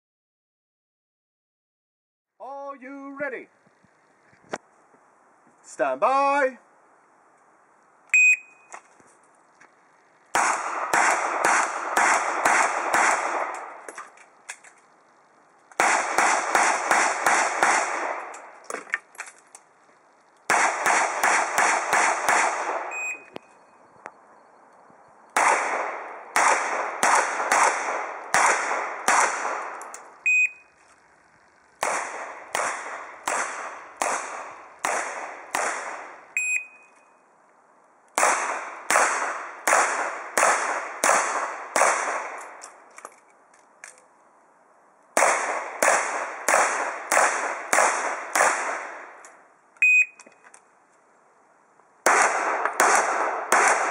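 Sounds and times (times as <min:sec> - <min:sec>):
shot timer beep: 0:08.1 - 0:08.7, 0:22.9 - 0:23.5, 0:30.2 - 0:30.7, 0:36.4 - 0:37.2, 0:49.8 - 0:50.2
rapid handgun shots: 0:10.3 - 0:13.8, 0:15.8 - 0:18.5, 0:20.5 - 0:23.0, 0:25.4 - 0:29.8, 0:31.8 - 0:36.2, 0:38.2 - 0:42.4, 0:45.2 - 0:49.2, 0:52.0 - 0:53.9.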